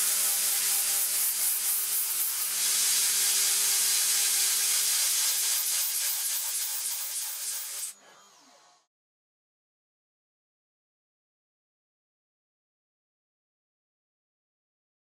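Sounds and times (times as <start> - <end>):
router cutting metal hiss: 0.0 - 8.9.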